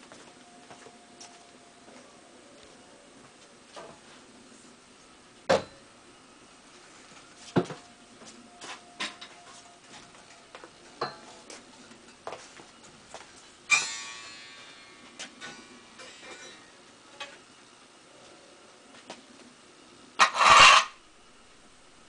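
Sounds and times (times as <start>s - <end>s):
loud ringing metallic clank: 13.7s - 16.7s.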